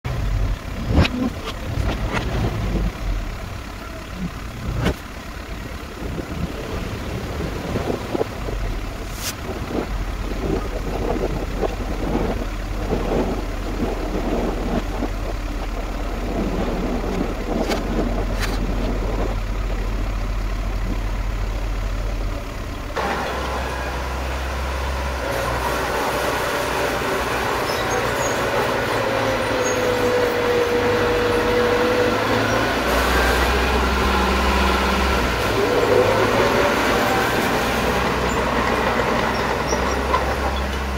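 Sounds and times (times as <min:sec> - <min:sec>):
bulldozer engine running: 0:00.0 - 0:40.9
dump truck diesel engine running: 0:00.0 - 0:40.9
dirt and stones sliding: 0:07.2 - 0:19.4.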